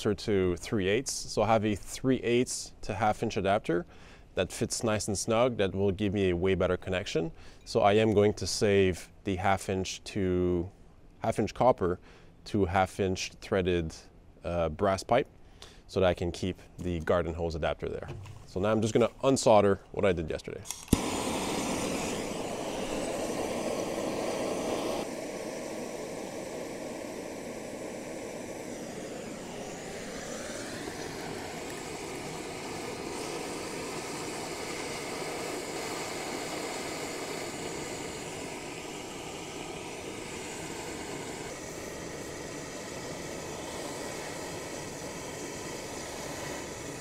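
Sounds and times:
gas torch hissing: 0:20.6 - 0:47.0.

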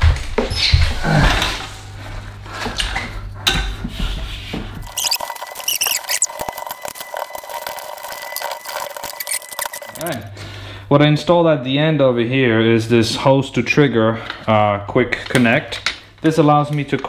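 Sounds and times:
hose reel squeaking: 0:04.8 - 0:10.2.

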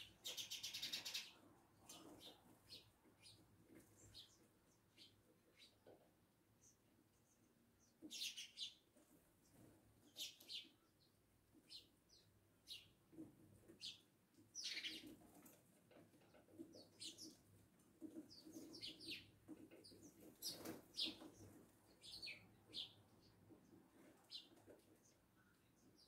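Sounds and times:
sparrows chirping: 0:00.0 - 0:15.2, 0:16.2 - 0:26.0.

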